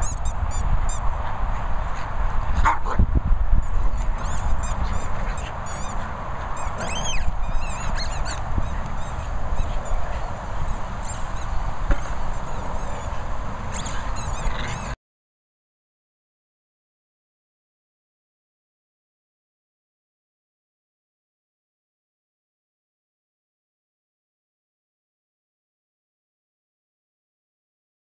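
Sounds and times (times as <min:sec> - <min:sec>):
dogs growling: 0:13.7 - 0:15.0.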